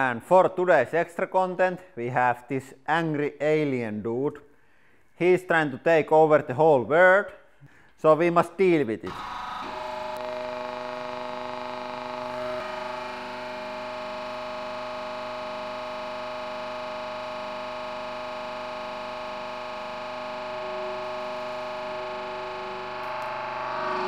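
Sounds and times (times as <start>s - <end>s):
hydraulic press pump whining: 9.0s - 24.0s.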